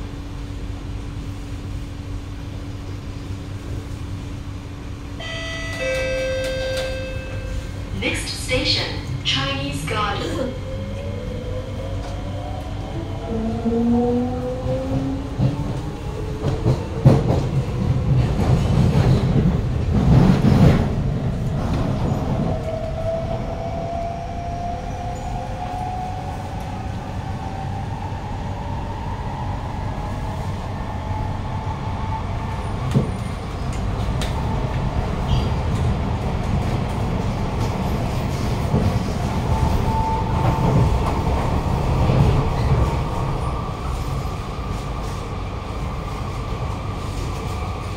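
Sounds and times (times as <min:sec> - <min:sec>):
wheels rumbling on rail: 0:00.0 - 0:47.9.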